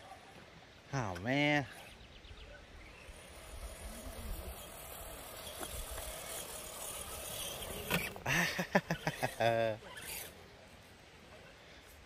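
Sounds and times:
electric motor and gears whirring: 0:02.8 - 0:10.4.

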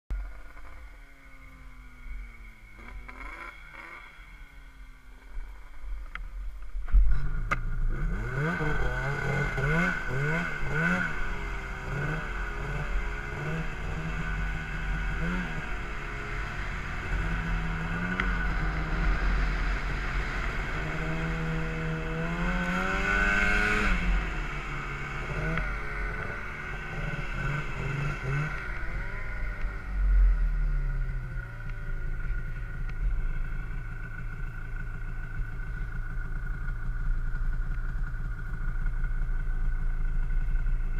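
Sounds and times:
high whine: 0:00.1 - 0:40.9
snowmobile engine revving: 0:02.6 - 0:04.6, 0:07.2 - 0:36.2.

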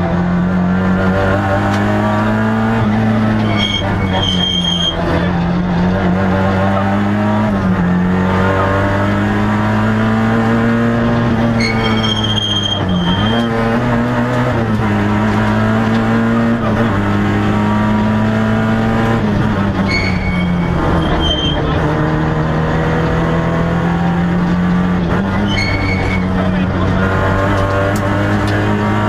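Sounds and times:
car engine revving high: 0:00.0 - 0:29.0.

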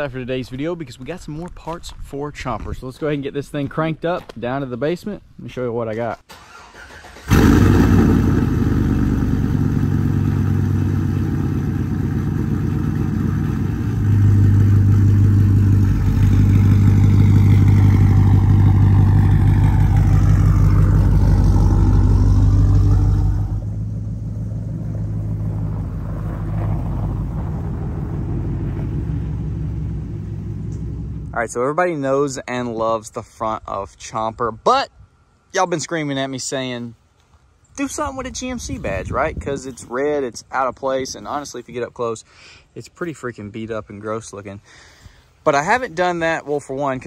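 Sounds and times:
engine running with loud exhaust: 0:07.3 - 0:31.4.

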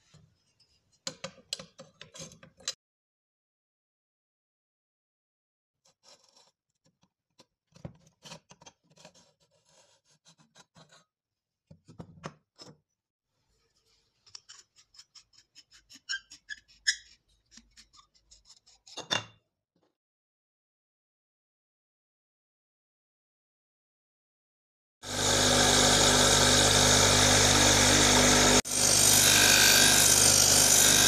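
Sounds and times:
metal rod scraping in tube: 0:13.7 - 0:19.2.

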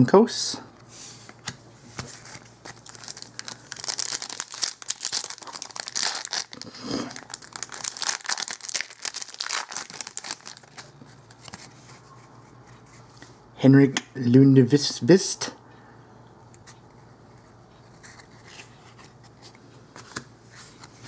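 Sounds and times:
wrapper tearing and crinkling: 0:02.7 - 0:10.9.

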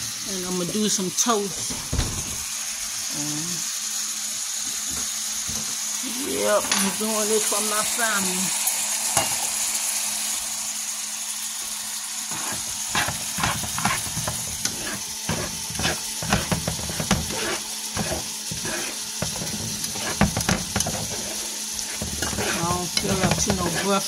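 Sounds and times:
eggs sizzling in a frying pan: 0:00.0 - 0:24.0
spatula scraping a pan: 0:12.3 - 0:24.0.

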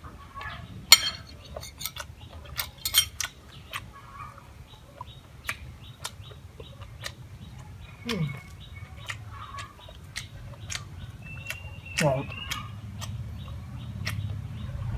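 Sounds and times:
metal spoon clinking on plate: 0:00.9 - 0:02.0, 0:02.6 - 0:03.2.

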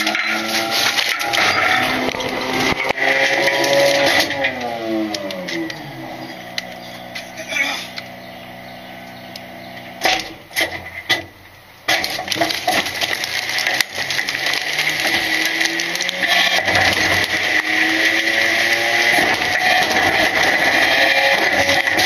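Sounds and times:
hydraulic whine: 0:00.0 - 0:10.5
truck engine revving: 0:00.0 - 0:10.6, 0:12.3 - 0:22.0.

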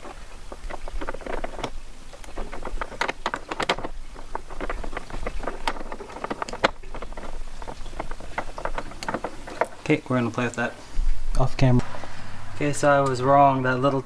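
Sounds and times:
key scraping in a lock: 0:00.0 - 0:09.9.

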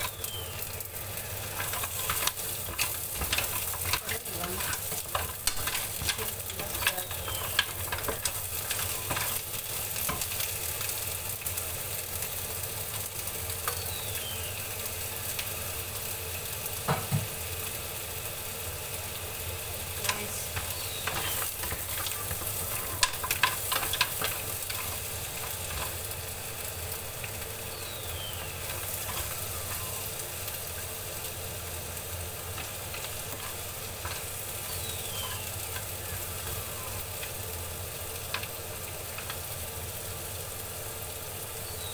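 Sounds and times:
spatula scraping pan: 0:00.0 - 0:10.9, 0:20.0 - 0:30.6, 0:32.4 - 0:37.4
mussels sizzling in frying pan: 0:00.0 - 0:41.9.

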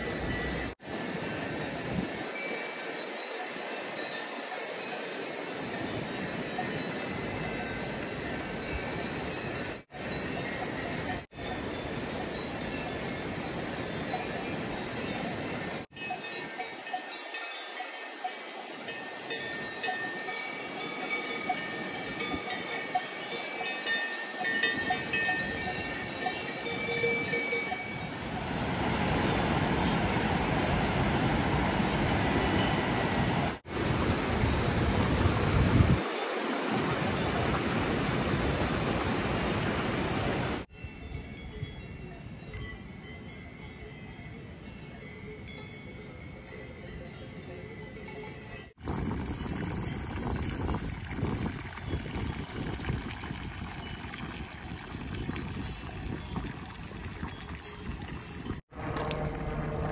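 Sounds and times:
cowbells clinking: 0:00.0 - 0:28.6, 0:40.7 - 0:48.8, 0:53.8 - 0:54.4, 0:55.2 - 0:56.5
mountain river rushing: 0:00.0 - 0:40.7.

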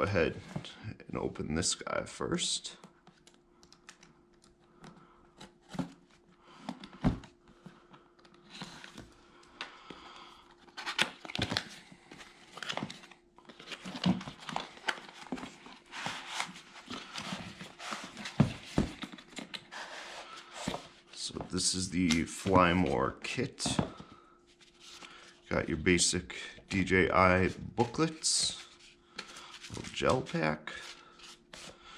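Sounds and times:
faint steady hum: 0:00.0 - 0:31.9
cardboard packaging rustling and tearing: 0:10.6 - 0:21.1.

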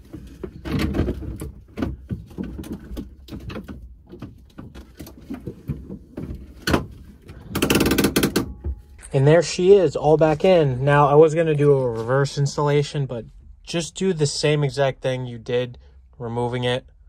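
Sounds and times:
shifter clicks and rattles: 0:00.0 - 0:09.0.

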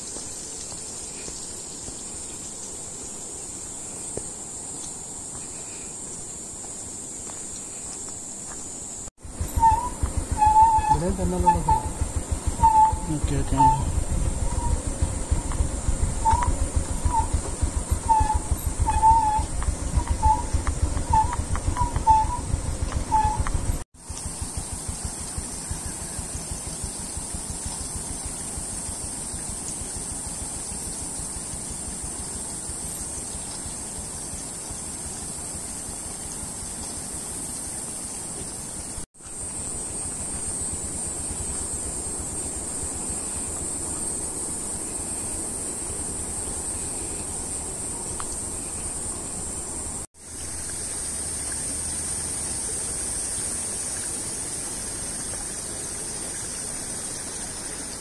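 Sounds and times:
high-pitched hiss: 0:00.0 - 0:22.4, 0:23.1 - 0:58.0
even rushing noise: 0:09.2 - 0:23.8.

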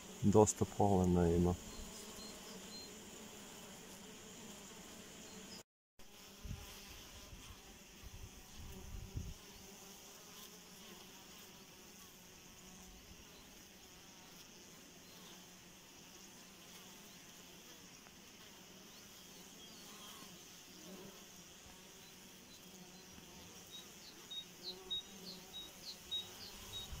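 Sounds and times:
bees buzzing: 0:00.0 - 0:27.0.

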